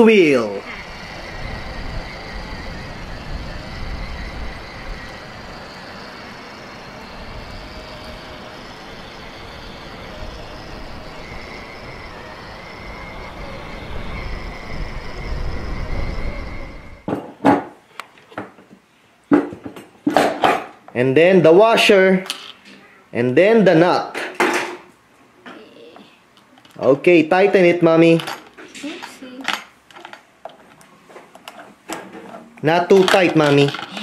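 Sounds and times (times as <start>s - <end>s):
electric motor whine: 0.0s - 17.1s.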